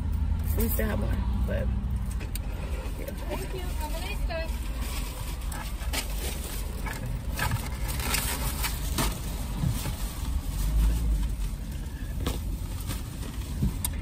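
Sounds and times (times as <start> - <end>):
car idling: 0.0 - 14.0
clicks and rustles of handling: 4.6 - 11.6.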